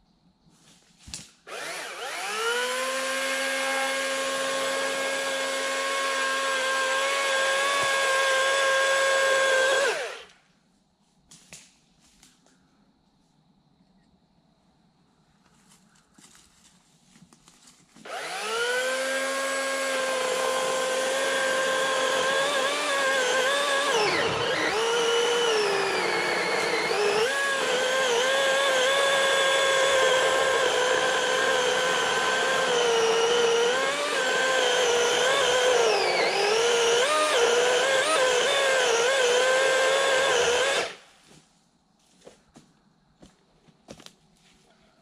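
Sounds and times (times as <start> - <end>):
battery chainsaw cutting wood: 1.5 - 10.3, 18.0 - 41.0.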